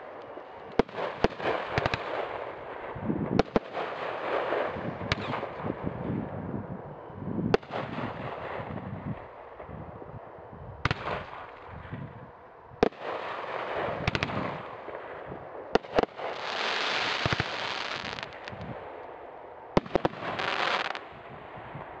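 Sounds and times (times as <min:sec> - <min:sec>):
firework crackling: 0:00.0 - 0:06.0, 0:12.8 - 0:22.0.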